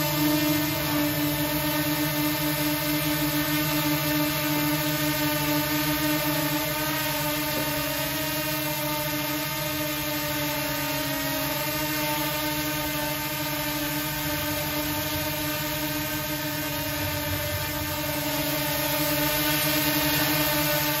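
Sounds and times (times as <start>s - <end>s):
drone propellers whining: 12.6s - 21.0s.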